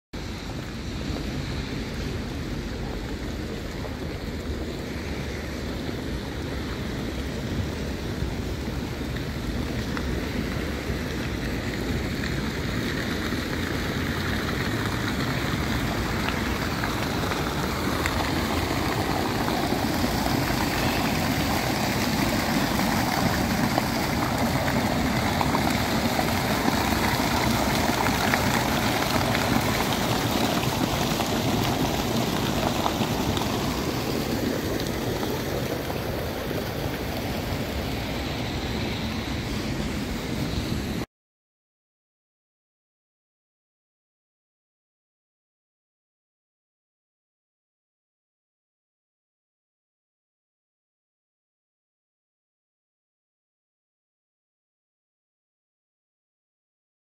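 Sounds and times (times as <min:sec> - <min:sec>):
fountain splashing into basin: 0:00.2 - 0:41.0.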